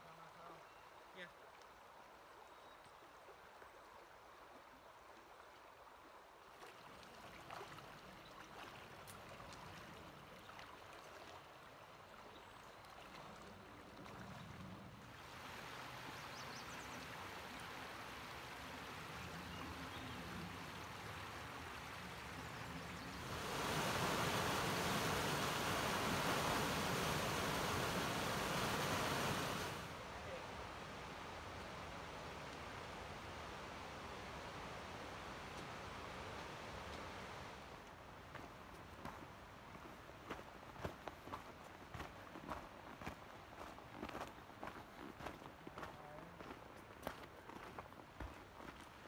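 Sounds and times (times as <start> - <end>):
stream water rushing: 3.1 - 40.7.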